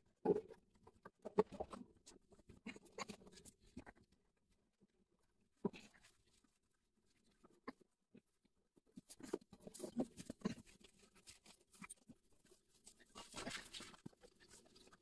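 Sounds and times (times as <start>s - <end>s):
rustling of tubing and cardboard: 9.0s - 15.0s.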